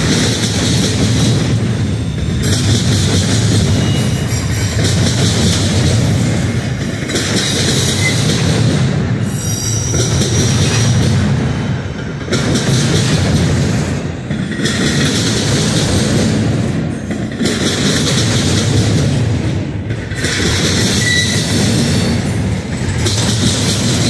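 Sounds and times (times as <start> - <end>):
train wheels rumbling on rail: 0.0 - 24.0
high wheel squeal: 3.6 - 5.0, 7.8 - 8.4, 9.2 - 11.1, 20.8 - 22.3.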